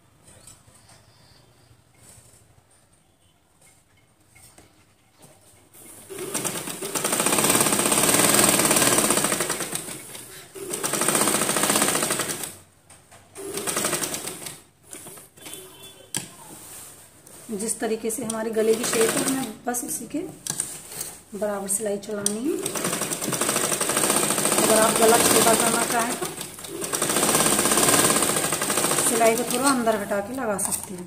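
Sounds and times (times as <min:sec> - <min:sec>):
sewing machine stitching: 0:05.8 - 0:12.6, 0:13.4 - 0:15.5, 0:18.3 - 0:19.6, 0:22.2 - 0:31.0.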